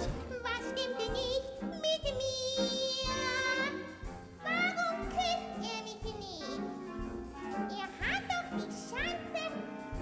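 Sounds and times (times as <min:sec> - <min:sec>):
backing music: 0:00.0 - 0:10.0.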